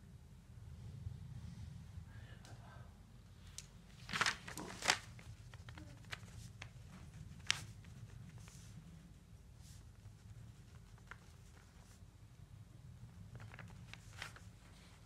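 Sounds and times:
low room hum: 0:00.0 - 0:15.0
rustling crinkling: 0:03.6 - 0:12.2, 0:13.1 - 0:15.0.

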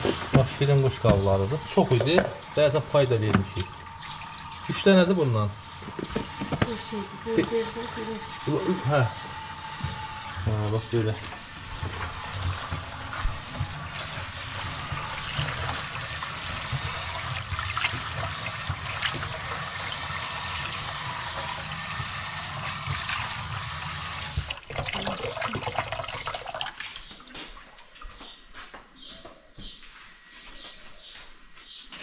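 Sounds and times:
tap water pouring into pan: 0:00.0 - 0:07.3, 0:08.3 - 0:27.0.

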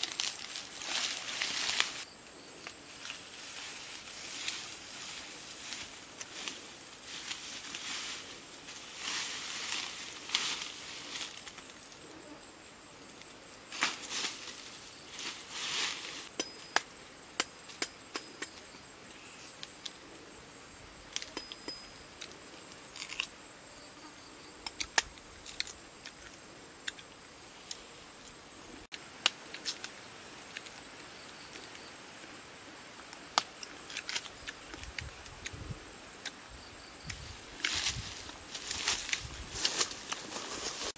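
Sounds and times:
branches rustling: 0:00.0 - 0:12.1, 0:13.0 - 0:16.4, 0:32.8 - 0:40.9
insects droning: 0:00.0 - 0:40.9.

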